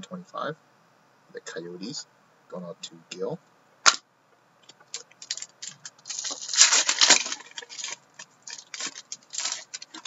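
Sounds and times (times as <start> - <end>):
trading cards rustling: 4.9 - 10.0.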